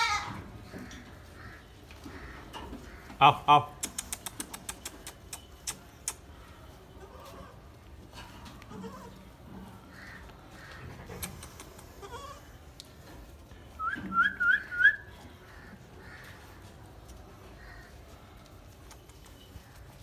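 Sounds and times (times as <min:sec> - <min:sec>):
goat kids bleating: 0:00.0 - 0:01.6, 0:06.8 - 0:12.8.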